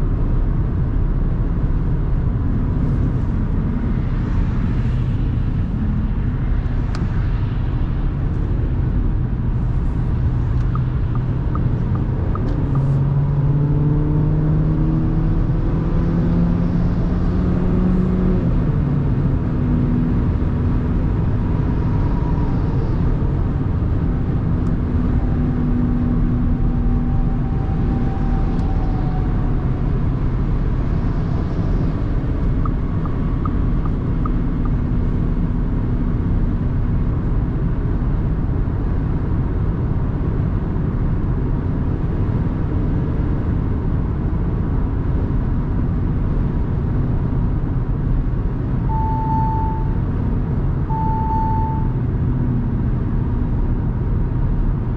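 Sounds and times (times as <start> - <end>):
car driving at speed: 0.0 - 54.9.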